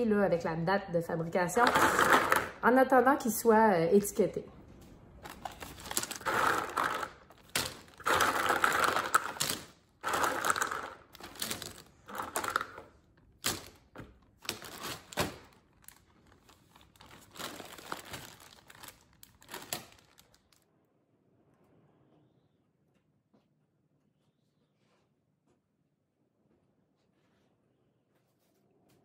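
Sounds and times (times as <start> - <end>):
plastic bag crinkling: 5.2 - 20.6.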